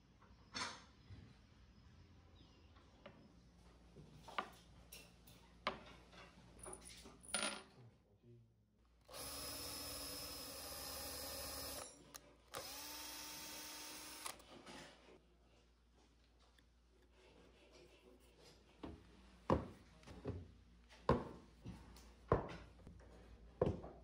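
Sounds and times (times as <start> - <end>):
power drill boring into wood: 9.1 - 14.4.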